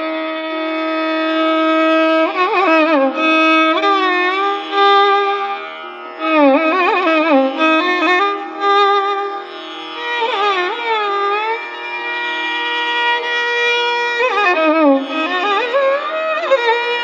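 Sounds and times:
violin duet: 0:00.0 - 0:17.0.

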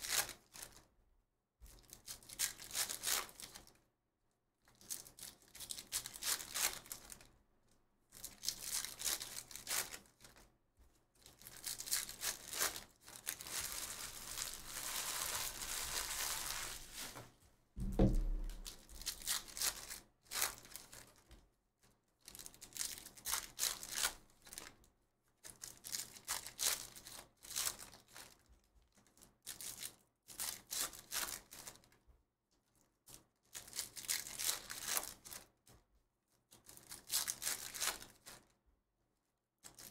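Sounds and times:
foil wrappers tearing and crinkling: 0:01.8 - 0:03.7, 0:04.8 - 0:07.2, 0:08.3 - 0:10.4, 0:11.2 - 0:17.3, 0:22.3 - 0:24.7, 0:25.5 - 0:28.3, 0:33.6 - 0:35.4, 0:36.8 - 0:38.4
dull thump: 0:17.8 - 0:18.8.

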